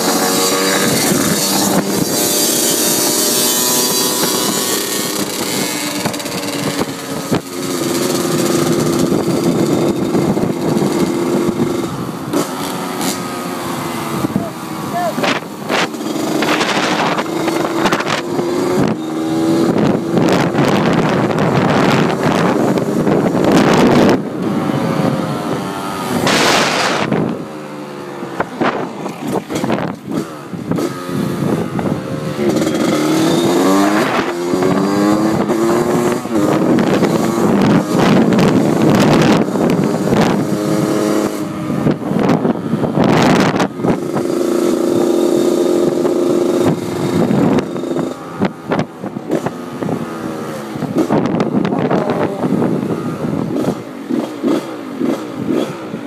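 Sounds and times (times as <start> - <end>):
dirt bike engine revving: 0.0 - 56.0
wind buffeting microphone: 0.0 - 56.0.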